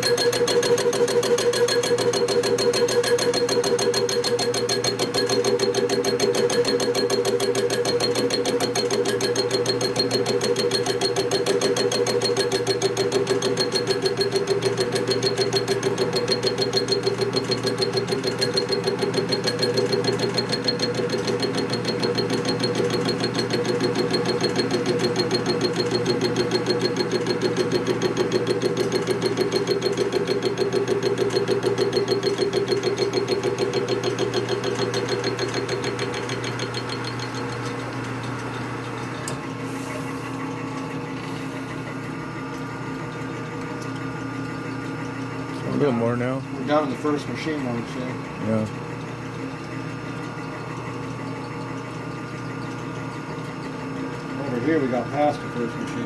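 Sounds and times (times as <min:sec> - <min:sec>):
milling machine cutting metal: 0:00.0 - 0:38.4.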